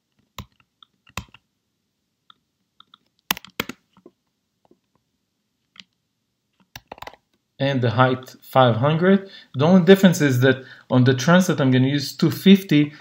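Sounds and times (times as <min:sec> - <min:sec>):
keyboard typing: 0:00.2 - 0:01.4, 0:02.8 - 0:04.1, 0:06.6 - 0:07.2.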